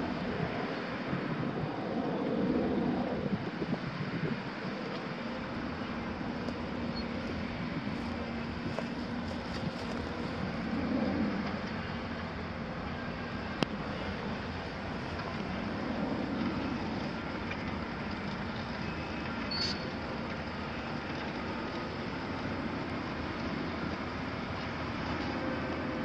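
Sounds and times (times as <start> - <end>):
brief high squeak: 19.5 - 19.9.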